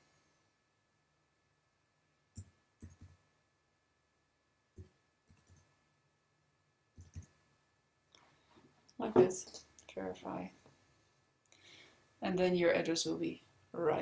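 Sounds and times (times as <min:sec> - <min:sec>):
computer keyboard keystrokes: 0:07.0 - 0:07.3.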